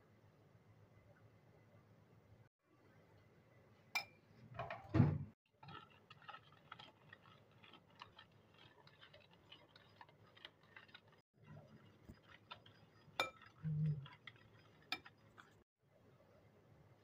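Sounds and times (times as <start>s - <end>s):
kitchenware knock and scrape: 4.0s - 5.4s
metal spoon stirring in plastic bowl: 5.5s - 15.6s.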